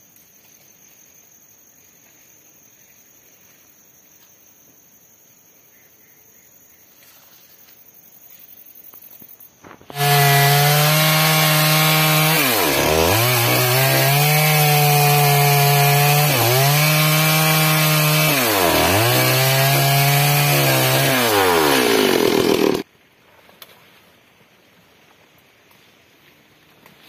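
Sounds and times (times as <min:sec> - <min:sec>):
chainsaw cutting log: 0:09.9 - 0:22.8.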